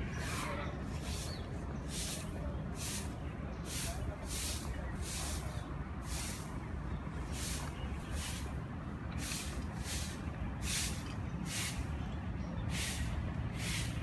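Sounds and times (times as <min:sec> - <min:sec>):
distant diesel locomotive rumble: 0:00.0 - 0:14.0
short swishing hisses: 0:12.7 - 0:14.0.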